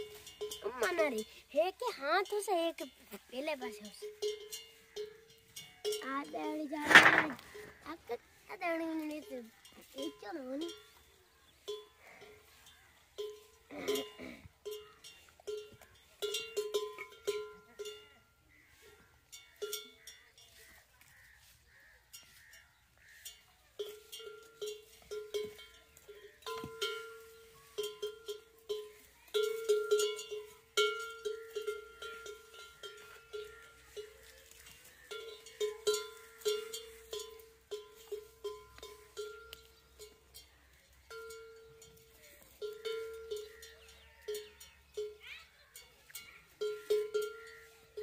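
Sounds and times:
metal bell clanking: 0.0s - 3.0s, 3.7s - 7.7s, 11.7s - 18.2s, 23.3s - 34.3s.

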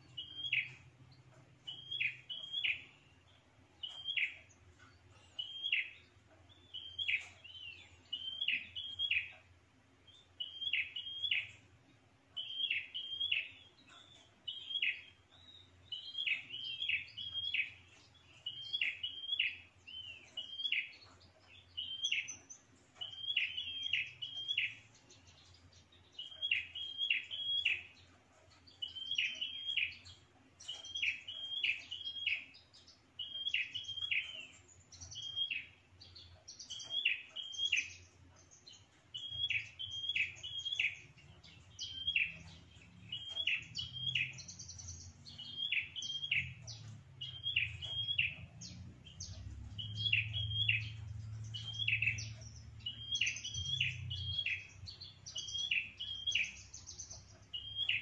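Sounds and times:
bird chirping song: 0.0s - 58.0s.

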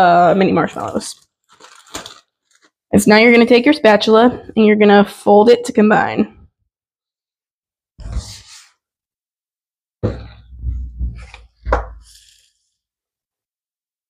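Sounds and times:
thumps and knocks of bowl: 10.0s - 12.0s.

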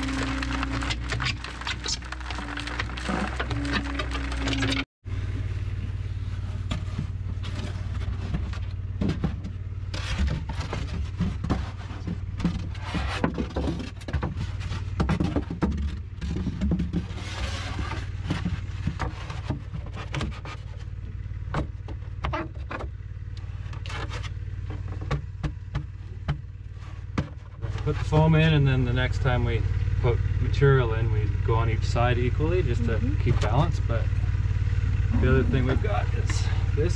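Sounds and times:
panels scraping and knocking on wood: 0.0s - 4.8s, 6.6s - 20.9s
engine running: 0.0s - 36.9s.

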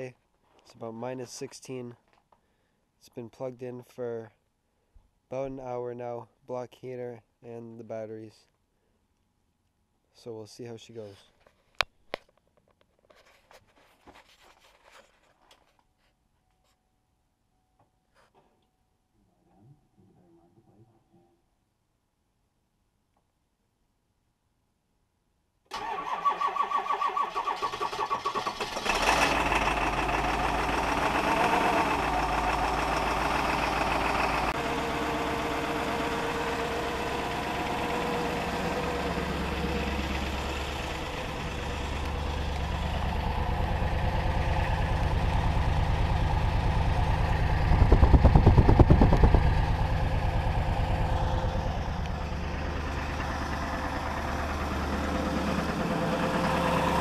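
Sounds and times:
diesel engine idling: 28.6s - 57.0s.

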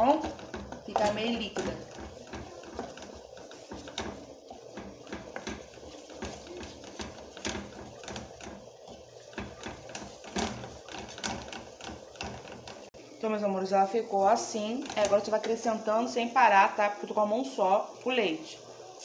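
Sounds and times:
wooden spoon scraping saucepan: 0.0s - 13.0s, 14.2s - 15.9s.

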